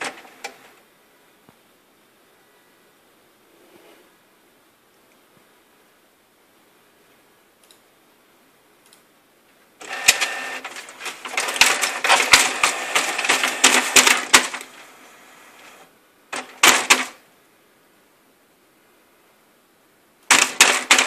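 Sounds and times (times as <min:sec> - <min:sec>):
printer clattering and whirring: 0:00.0 - 0:00.8, 0:09.8 - 0:17.2, 0:20.3 - 0:21.0
printer humming: 0:00.0 - 0:00.8, 0:09.8 - 0:17.2, 0:20.3 - 0:21.0.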